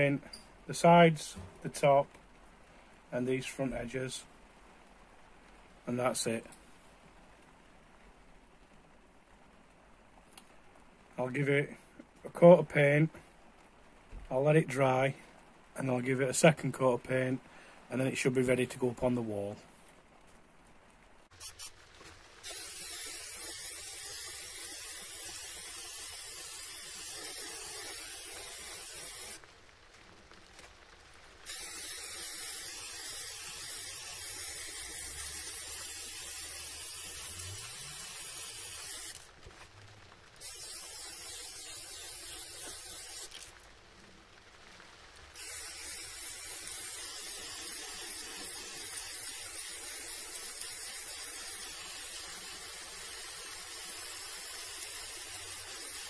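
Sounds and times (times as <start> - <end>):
spray paint can hissing: 21.3 - 29.4, 31.4 - 39.4, 40.4 - 43.6, 45.3 - 56.0.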